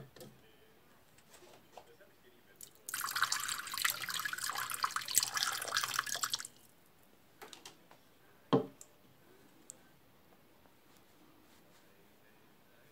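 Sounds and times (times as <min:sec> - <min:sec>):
water splashing into a dish: 0:02.6 - 0:06.6.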